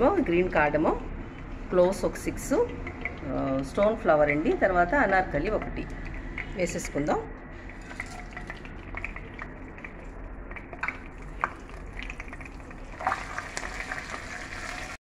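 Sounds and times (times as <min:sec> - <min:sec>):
spatula stirring: 0:07.6 - 0:14.8
spices sizzling in hot oil: 0:10.6 - 0:15.0.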